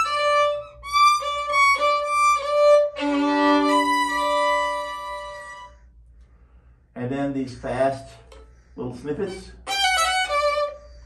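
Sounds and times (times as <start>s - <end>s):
solo violin bowed: 0.0s - 5.8s, 9.6s - 11.0s.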